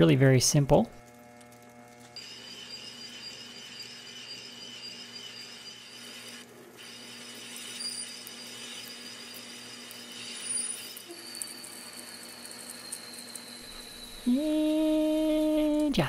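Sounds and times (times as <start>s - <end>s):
metal lathe cutting whine: 2.2s - 14.3s.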